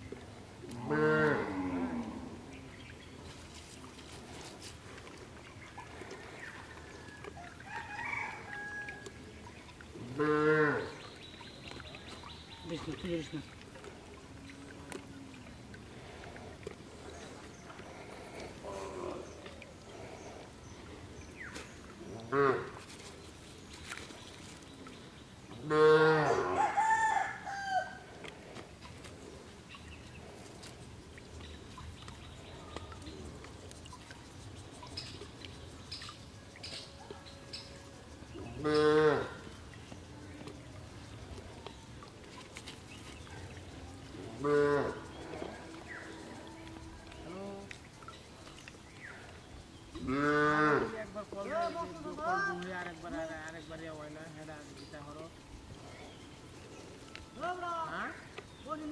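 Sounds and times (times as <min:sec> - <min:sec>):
cow mooing: 0:00.8 - 0:02.4, 0:10.1 - 0:11.0, 0:25.6 - 0:26.6, 0:38.6 - 0:39.4, 0:44.4 - 0:46.9, 0:50.0 - 0:51.0
rooster crowing: 0:07.6 - 0:09.1, 0:26.2 - 0:28.0
faint farmyard animal calls: 0:25.5 - 0:28.1, 0:38.4 - 0:39.5.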